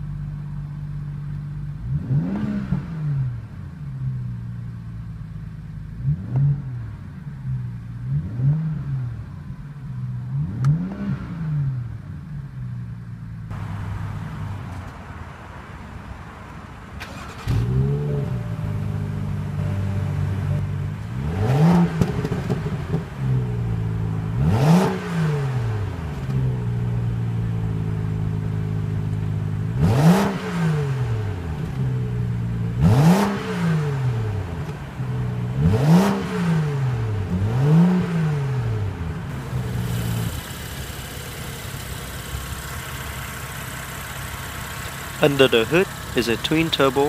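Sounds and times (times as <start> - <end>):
car engine revving and idling: 0.0 - 47.0.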